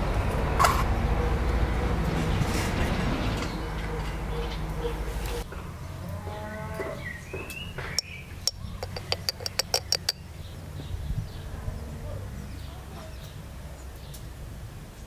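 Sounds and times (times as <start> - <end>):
metal sieve tapping clicks: 7.9 - 10.2.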